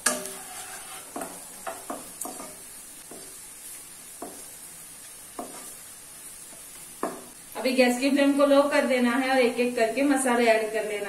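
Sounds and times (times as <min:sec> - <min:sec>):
spatula scraping and tapping pan: 0:00.0 - 0:05.8, 0:06.5 - 0:07.4
hot oil sizzling: 0:00.0 - 0:11.0.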